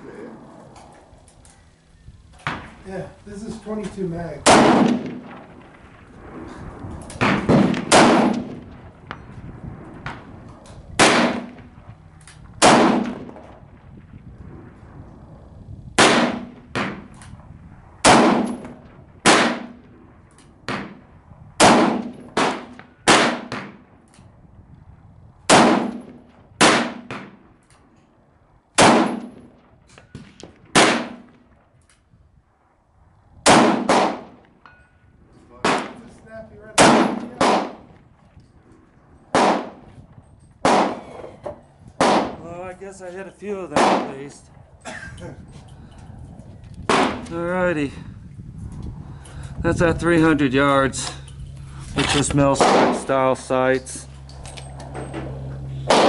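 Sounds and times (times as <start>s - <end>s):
rifle gunshots: 4.4s - 5.9s, 7.2s - 9.1s, 11.0s - 11.8s, 12.6s - 13.6s, 16.0s - 17.1s, 18.0s - 20.0s, 21.6s - 23.9s, 25.5s - 27.4s, 28.8s - 29.6s, 30.2s - 31.5s, 33.4s - 34.4s, 35.6s - 36.0s, 36.7s - 38.0s, 39.3s - 39.9s, 40.6s - 41.1s, 42.0s - 42.4s, 43.7s - 44.3s, 46.8s - 47.3s, 52.0s - 53.5s, 54.8s - 56.0s.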